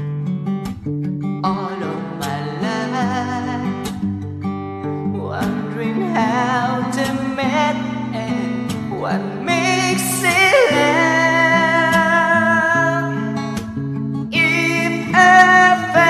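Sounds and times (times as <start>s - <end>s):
strummed acoustic guitar: 0.0s - 16.0s
man singing: 1.4s - 4.0s, 5.0s - 13.6s, 14.3s - 16.0s.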